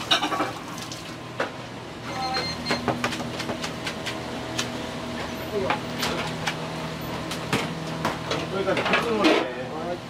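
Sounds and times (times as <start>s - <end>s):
short electronic beep: 2.1s - 2.8s.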